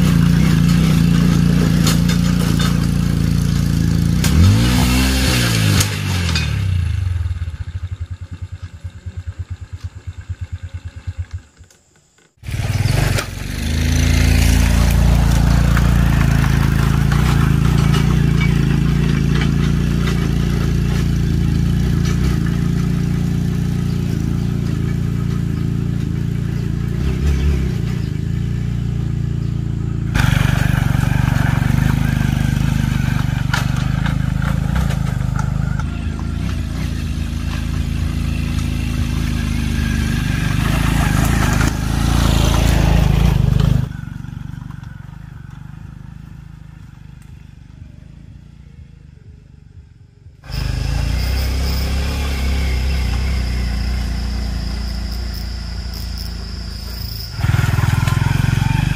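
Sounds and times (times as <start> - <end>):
motorbike engine running: 0.0 - 58.9
high insect buzz: 50.5 - 58.8.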